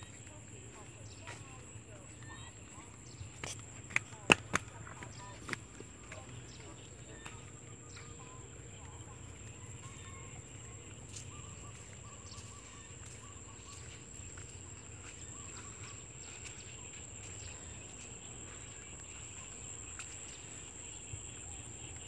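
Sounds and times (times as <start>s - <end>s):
faint bird chirps: 5.1s - 22.0s.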